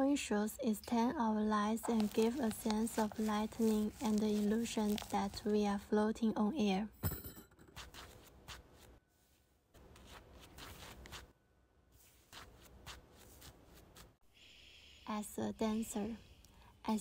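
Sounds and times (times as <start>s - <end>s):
hair and hairpins rustling: 1.8s - 5.6s.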